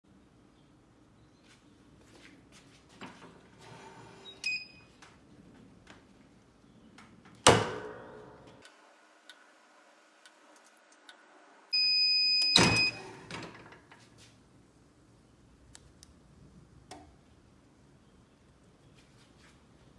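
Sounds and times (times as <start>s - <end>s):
short beep: 10.8s - 13.0s
timer beeping: 10.8s - 13.0s.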